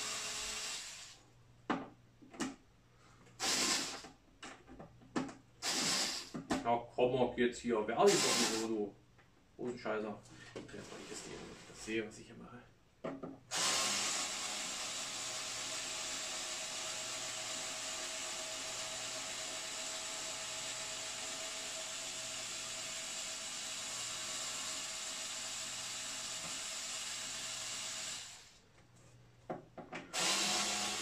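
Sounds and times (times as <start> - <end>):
cordless drill motor running: 0.0 - 1.2, 5.6 - 6.3, 8.1 - 8.7, 13.5 - 28.6, 30.1 - 31.0.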